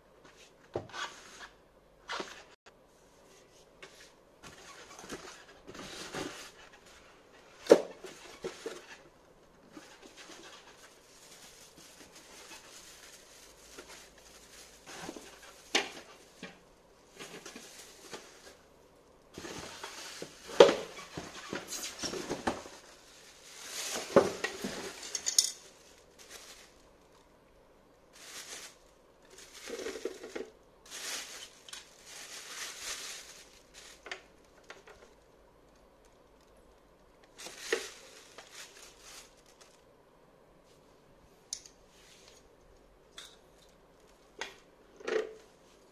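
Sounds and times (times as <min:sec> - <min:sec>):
cardboard and styrofoam rustling: 0:03.8 - 0:09.1, 0:09.7 - 0:18.7, 0:19.3 - 0:26.8, 0:28.1 - 0:35.2, 0:37.3 - 0:39.8.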